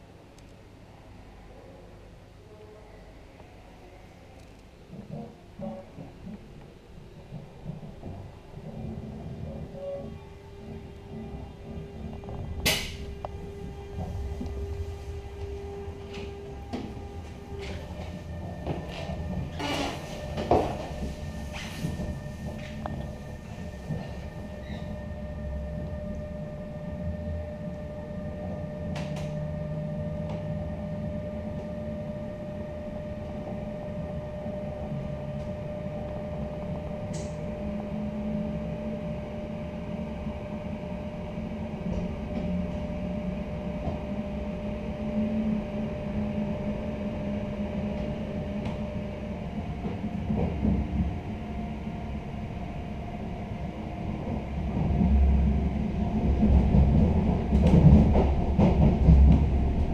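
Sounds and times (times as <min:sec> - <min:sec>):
steady electrical hum: 0:00.0 - 0:59.9
click: 0:00.4 - 0:00.6
low rumble: 0:05.0 - 0:40.5.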